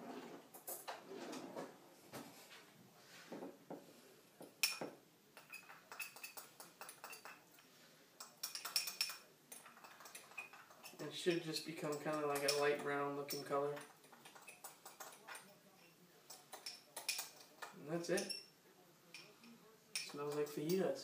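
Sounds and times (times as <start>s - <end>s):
spoon clinking in glass bowl: 4.6s - 7.4s, 8.2s - 18.5s.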